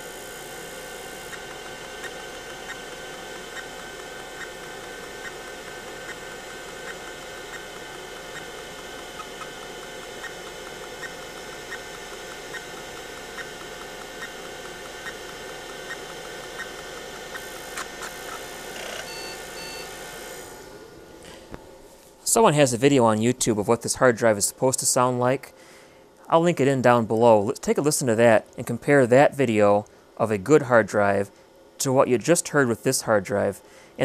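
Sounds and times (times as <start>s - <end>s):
hard drive ticking: 0.0s - 20.2s
hard drive whirring: 0.0s - 22.2s
hard drive clicks: 1.0s - 19.8s.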